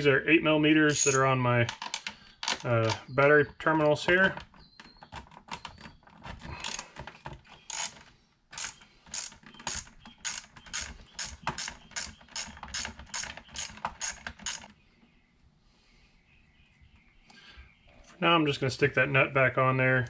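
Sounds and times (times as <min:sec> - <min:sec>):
hand ratchet clicking: 0:00.9 - 0:01.2, 0:07.6 - 0:14.7.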